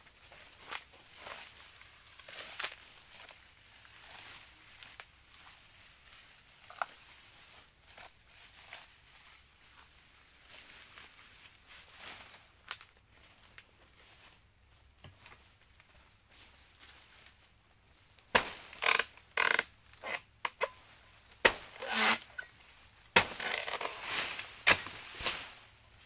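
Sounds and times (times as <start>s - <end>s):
high-pitched insect drone: 0.0s - 26.0s
blade chopping into palm: 18.3s - 18.7s, 21.4s - 22.2s, 23.2s - 23.8s, 24.6s - 25.4s.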